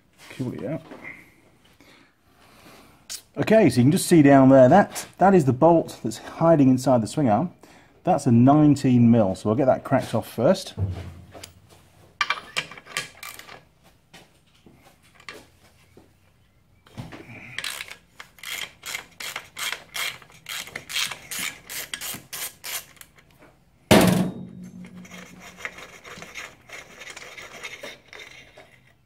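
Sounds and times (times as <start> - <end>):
loud sharp knock: 10.8 - 11.5, 23.9 - 25.0.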